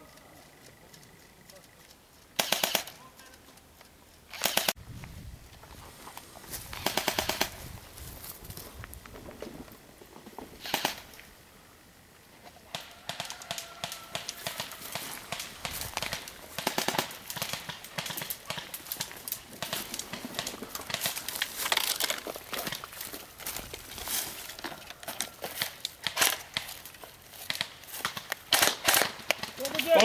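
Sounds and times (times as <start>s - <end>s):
sharp rattle: 2.4s - 3.0s, 4.3s - 4.8s
footsteps crunching through dry leaves: 4.8s - 10.5s, 13.4s - 30.0s
twigs snapping: 12.8s - 30.0s.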